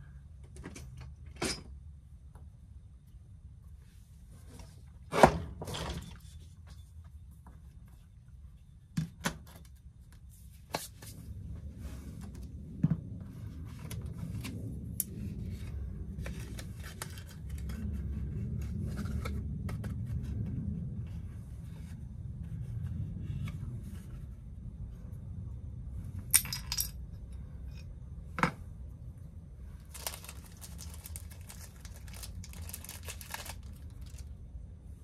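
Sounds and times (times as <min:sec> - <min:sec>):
low rumble: 0:11.1 - 0:35.0.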